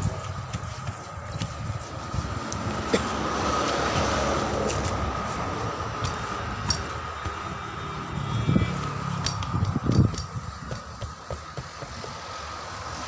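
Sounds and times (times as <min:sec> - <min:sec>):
steady rushing background: 0:00.0 - 0:13.0.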